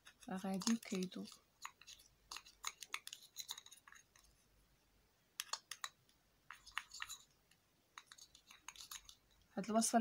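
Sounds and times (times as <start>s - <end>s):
metal spoon scraping cup: 0.4s - 4.2s, 6.5s - 7.3s, 8.0s - 9.2s.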